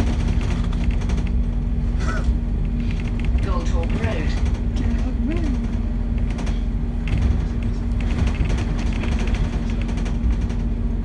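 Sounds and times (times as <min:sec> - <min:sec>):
bus interior hum and rumble: 0:00.0 - 0:11.0.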